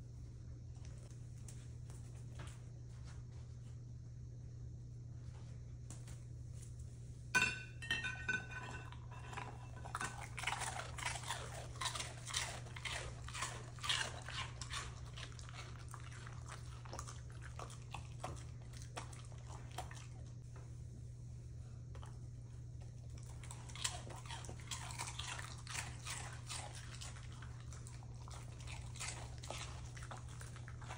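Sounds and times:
dog crunching and chewing: 8.8 - 20.4, 22.8 - 30.9.

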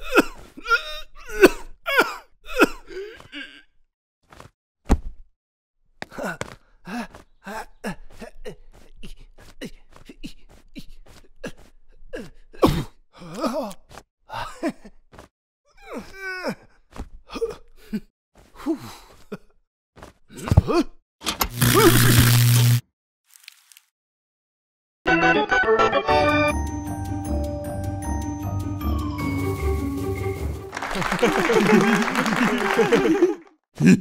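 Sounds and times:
cartoon gasps groans and grunts: 6.0 - 14.7, 15.7 - 19.2, 33.8 - 34.0.

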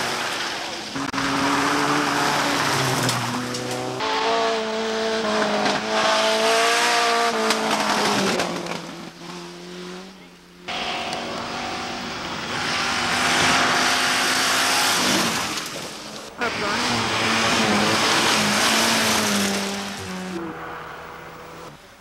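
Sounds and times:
rally car engines revving past: 0.0 - 21.9
tyres on gravel: 7.3 - 9.5.

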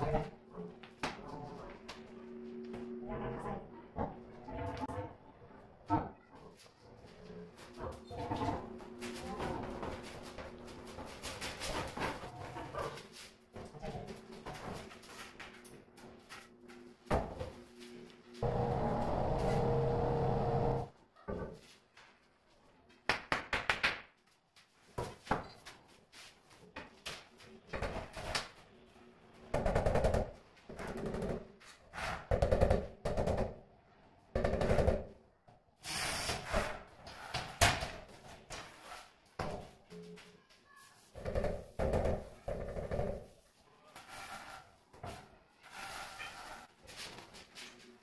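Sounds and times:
steady loud noise: 18.4 - 20.9.

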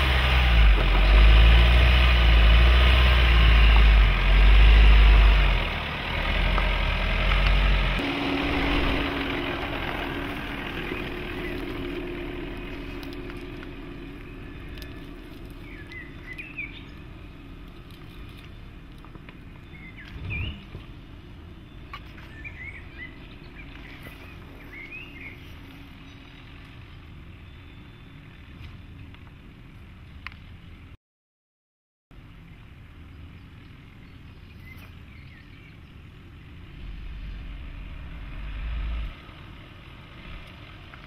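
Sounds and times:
diesel engine pulling away: 0.0 - 28.6, 33.0 - 41.0
bird chirps: 14.0 - 17.1, 18.4 - 21.0, 21.6 - 28.6, 32.5 - 37.6.

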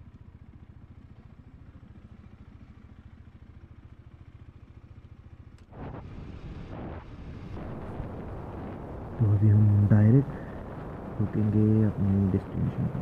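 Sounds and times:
loud rush of noise: 5.8 - 13.0.

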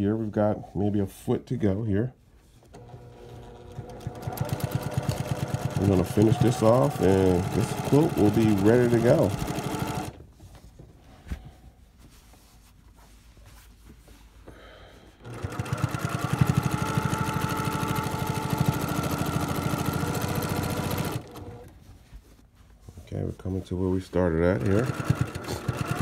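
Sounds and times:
sewing machine stitching: 2.7 - 10.2, 15.2 - 21.7, 24.5 - 26.0.

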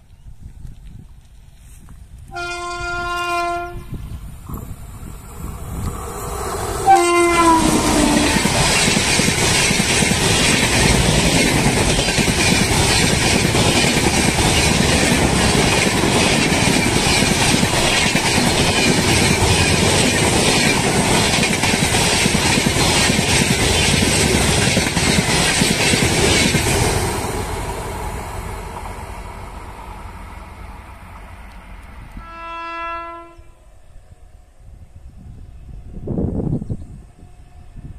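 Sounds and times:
train horn: 2.3 - 4.0, 6.8 - 8.6, 32.1 - 33.7
train wheels clattering over rails: 7.4 - 27.4.

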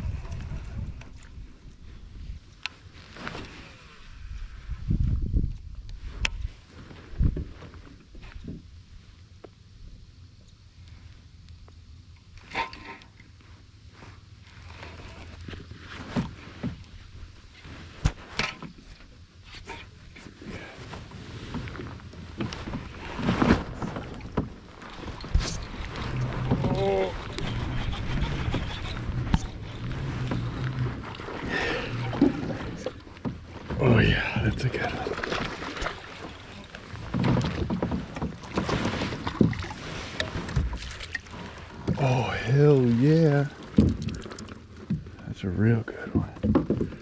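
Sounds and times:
steady low rumble: 0.0 - 3.0
wind buffeting microphone: 4.3 - 7.5
rustling: 13.4 - 44.8
water splashing around kayak: 13.8 - 47.0.

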